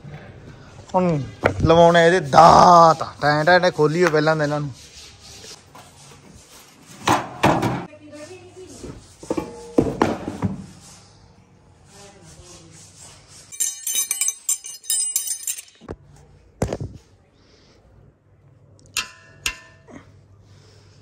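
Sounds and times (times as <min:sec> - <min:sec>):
short metallic clink: 0:13.5 - 0:15.9
spanners clinking together: 0:13.5 - 0:15.9.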